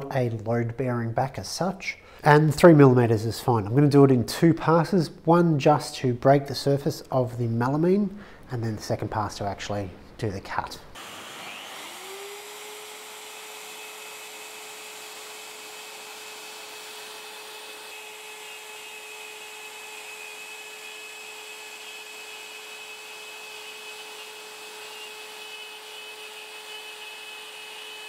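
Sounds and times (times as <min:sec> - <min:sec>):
router whining: 0:11.0 - 0:28.0.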